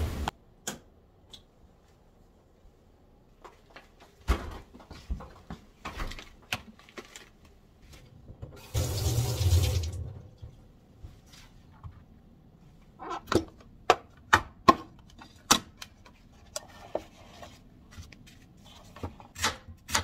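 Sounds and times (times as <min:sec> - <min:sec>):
tap running water into sink: 0:08.6 - 0:10.2.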